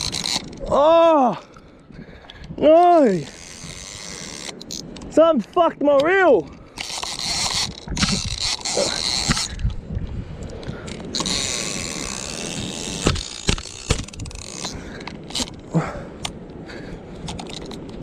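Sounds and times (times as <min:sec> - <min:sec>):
fishing reel scraping and clicking: 0:00.0 - 0:00.7, 0:03.0 - 0:05.1, 0:06.7 - 0:09.8, 0:10.4 - 0:15.6.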